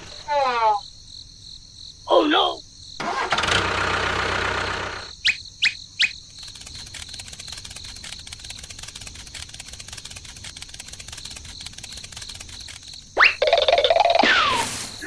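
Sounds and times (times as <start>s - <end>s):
fast ticking: 6.3s - 14.0s.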